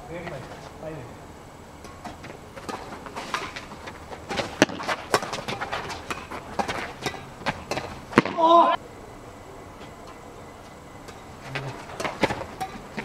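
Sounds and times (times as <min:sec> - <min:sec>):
rackets striking shuttlecock: 0:01.8 - 0:08.8, 0:09.8 - 0:13.0
shoes scuffing on hard court: 0:02.1 - 0:08.4.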